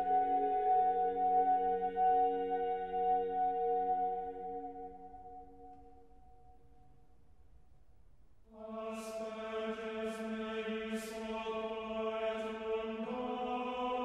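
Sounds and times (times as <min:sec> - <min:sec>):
chanted drone: 0:00.0 - 0:05.7.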